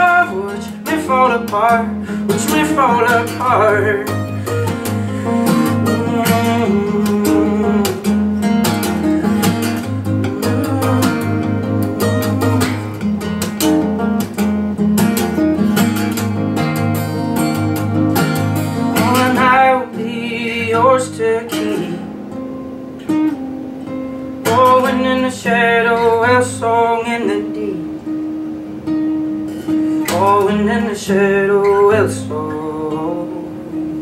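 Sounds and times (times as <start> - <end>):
person singing: 0.0 - 13.2, 18.8 - 22.1, 24.4 - 28.0, 30.0 - 34.0
acoustic guitar strumming: 0.0 - 34.0.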